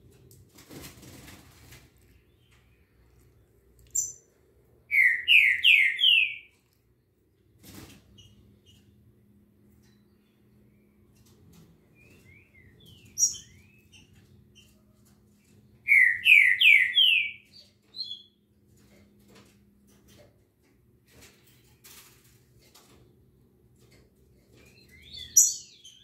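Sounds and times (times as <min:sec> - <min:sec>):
songbirds chirping: 0:01.6 - 0:26.0.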